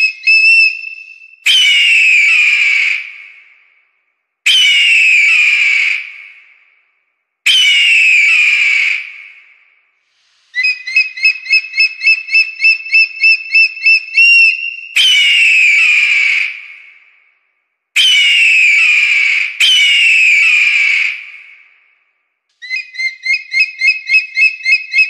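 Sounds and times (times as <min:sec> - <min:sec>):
eagle screams: 0:01.5 - 0:03.2, 0:04.5 - 0:06.2, 0:07.5 - 0:09.3, 0:18.0 - 0:21.4.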